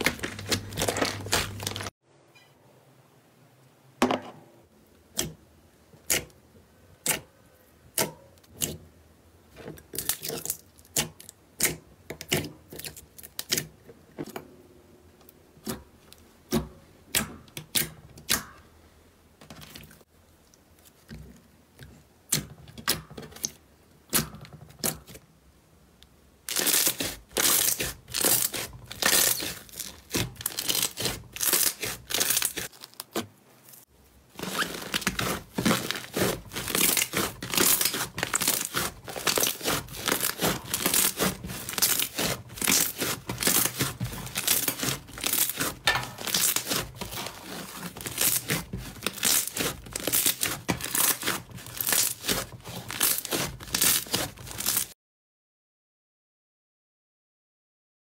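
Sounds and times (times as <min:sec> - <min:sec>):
foam slime crackling: 0:00.0 - 0:02.0, 0:26.5 - 0:33.3, 0:34.3 - 0:54.9.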